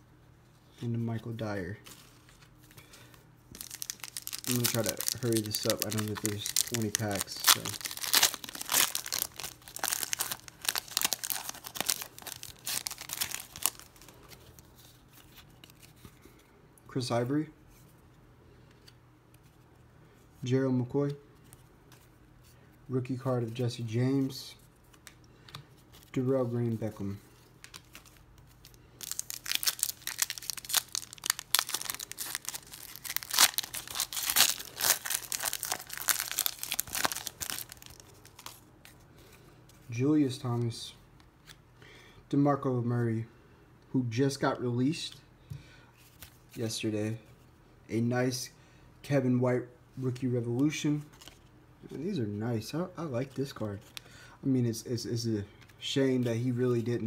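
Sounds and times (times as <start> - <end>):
foil wrapper crinkling: 3.5 - 14.6, 27.6 - 38.6.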